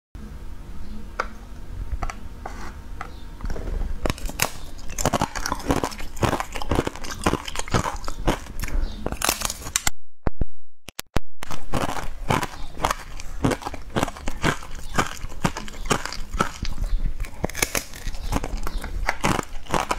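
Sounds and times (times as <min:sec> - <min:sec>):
crunching and chewing: 0:04.0 - 0:09.8, 0:11.4 - 0:19.9.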